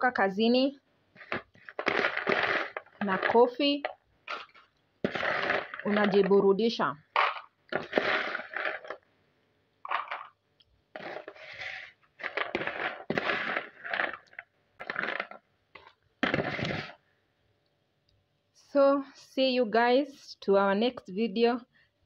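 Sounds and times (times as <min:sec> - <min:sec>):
crunchy snacks rattling on plastic: 0:01.2 - 0:09.1, 0:09.8 - 0:10.4, 0:11.0 - 0:17.0.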